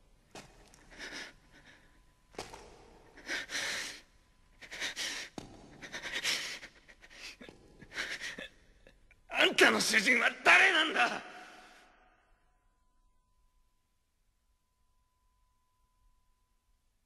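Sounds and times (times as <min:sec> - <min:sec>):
man breathing heavily: 0:00.6 - 0:08.6.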